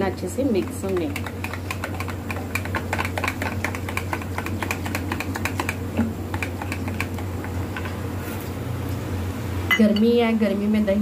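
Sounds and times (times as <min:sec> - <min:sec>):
low steady hum: 0:00.0 - 0:11.0
whisk clicking against plastic bowl: 0:00.4 - 0:07.9.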